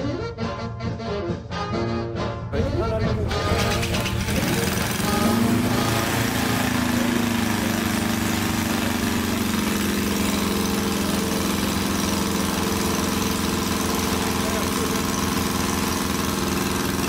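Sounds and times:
model aircraft engine running: 0:03.0 - 0:17.0.

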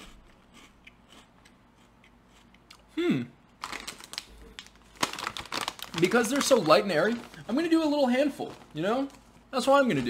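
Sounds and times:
person humming: 0:02.9 - 0:03.4
plastic snack pouch crinkling: 0:03.6 - 0:10.0.

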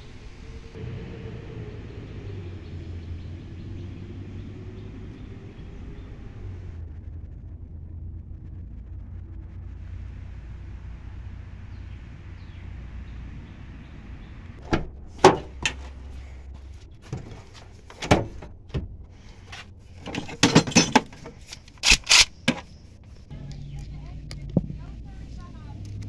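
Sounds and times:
low steady rumble: 0:00.0 - 0:26.0
plastic tools clattering: 0:20.0 - 0:22.7.

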